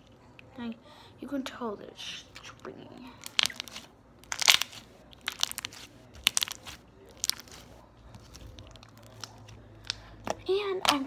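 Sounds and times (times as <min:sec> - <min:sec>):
slime clicking and popping: 0:03.2 - 0:07.6.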